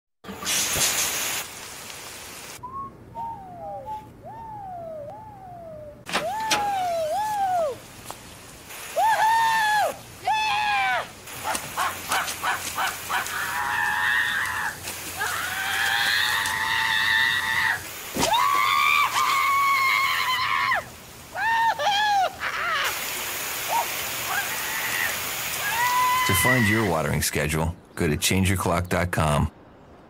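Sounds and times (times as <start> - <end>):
sprinkler spray hissing and ticking: 0.4 - 2.6, 6.1 - 26.6
person whooping: 3.2 - 7.9, 8.8 - 23.0, 23.7 - 26.9.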